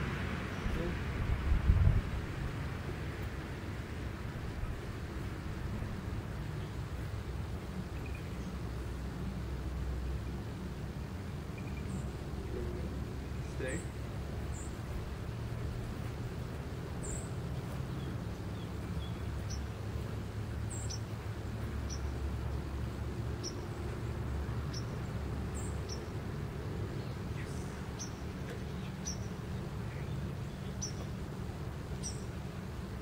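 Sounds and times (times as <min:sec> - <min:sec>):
small birds chirping: 0:07.8 - 0:08.8, 0:11.4 - 0:33.0.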